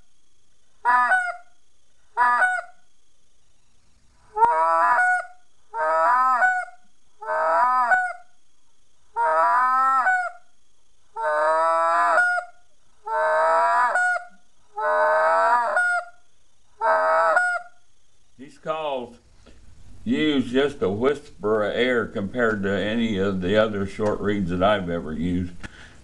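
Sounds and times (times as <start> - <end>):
goose call notes: 0.8 - 1.4, 2.2 - 2.8, 4.3 - 8.2, 9.2 - 10.4, 11.2 - 16.2, 16.8 - 17.7.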